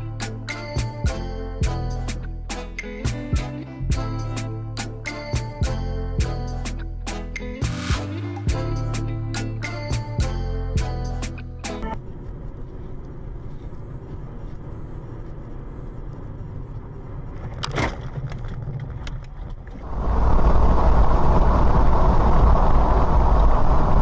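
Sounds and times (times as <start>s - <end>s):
car road and engine rumble: 8.2s - 24.0s
road and wind noise: 9.8s - 24.0s.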